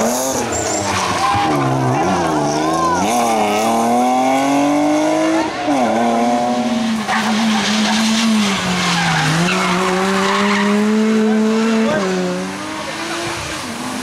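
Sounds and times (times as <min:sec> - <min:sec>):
rally car engine revving: 0:00.0 - 0:14.0
tyres squealing: 0:00.3 - 0:03.2.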